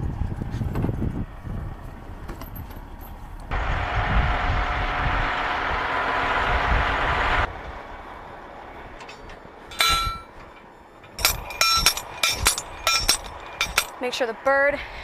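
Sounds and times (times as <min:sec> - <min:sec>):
diesel truck engine running: 0:00.0 - 0:15.0
ringing metal strikes: 0:09.2 - 0:14.2.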